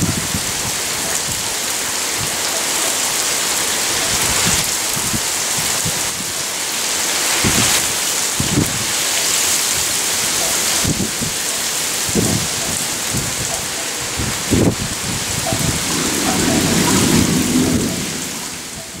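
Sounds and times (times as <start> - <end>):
heavy rain pouring: 0.0 - 19.0
thunder rumbling: 10.9 - 19.0.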